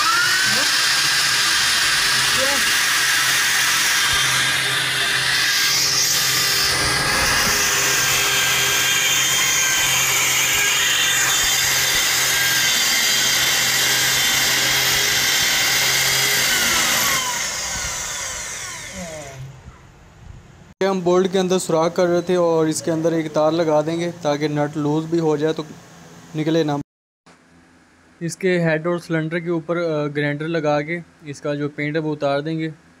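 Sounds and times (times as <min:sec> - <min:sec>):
electric drill running: 0:00.0 - 0:19.4.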